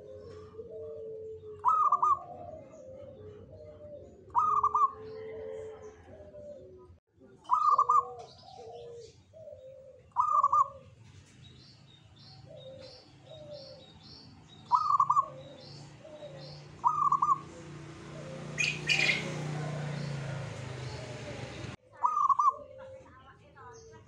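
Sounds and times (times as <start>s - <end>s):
dove cooing: 0.0s - 11.0s, 12.2s - 23.1s
faint high bird chirps: 18.5s - 20.2s.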